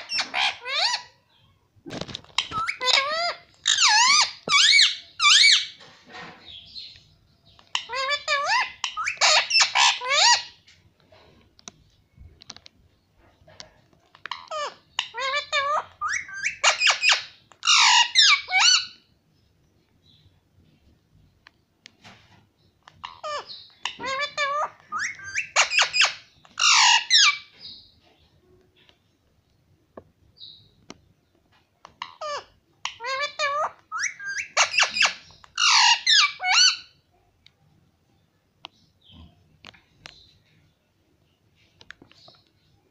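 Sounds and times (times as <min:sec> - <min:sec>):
parakeet squawking calls: 0:00.0 - 0:01.2, 0:02.4 - 0:05.8, 0:07.7 - 0:10.6, 0:14.3 - 0:19.0, 0:23.0 - 0:27.8, 0:32.0 - 0:37.0.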